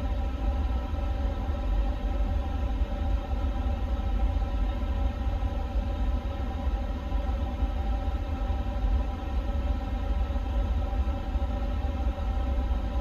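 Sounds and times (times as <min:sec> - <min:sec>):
steady hum of fans: 0:00.0 - 0:13.0.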